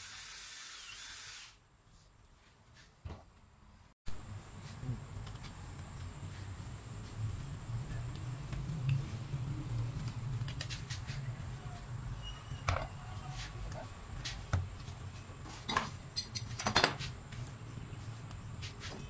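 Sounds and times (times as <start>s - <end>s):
tools clicking and knocking: 15.7s - 17.0s.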